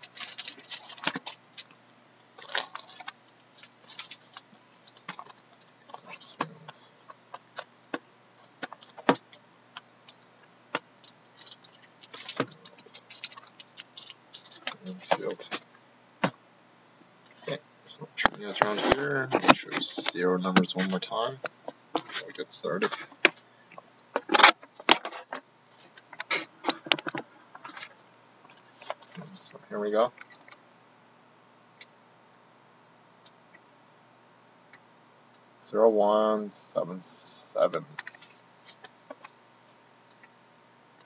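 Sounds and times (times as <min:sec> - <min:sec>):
shrink wrap crinkling: 0:00.0 - 0:06.7, 0:11.0 - 0:15.6.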